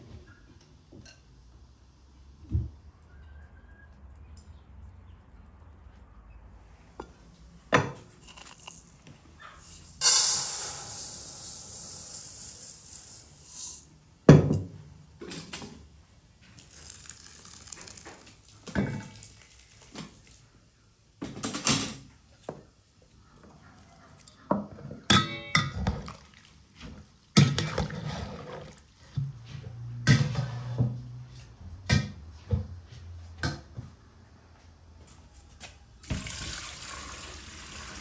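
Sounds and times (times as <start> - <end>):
dry rice hissing in a bowl: 9.6 - 13.9, 16.6 - 18.2.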